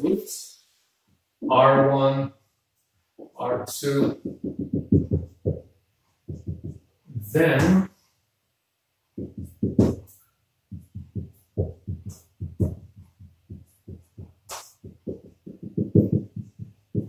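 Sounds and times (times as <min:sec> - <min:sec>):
marker writing on whiteboard: 0:03.9 - 0:07.8, 0:09.2 - 0:17.0.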